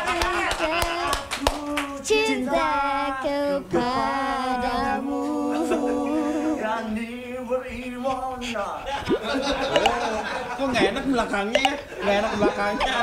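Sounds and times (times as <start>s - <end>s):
person singing without words: 1.5s - 6.8s.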